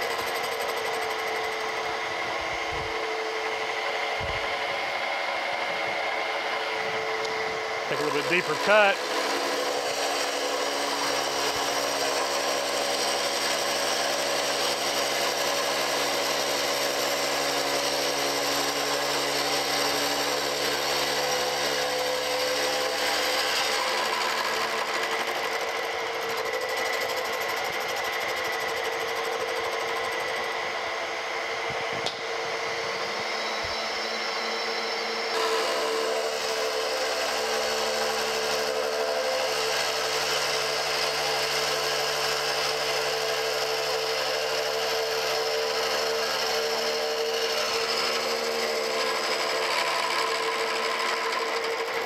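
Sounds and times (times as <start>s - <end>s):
machine running hum: 0.0s - 14.6s
milling machine cutting metal: 0.0s - 52.0s.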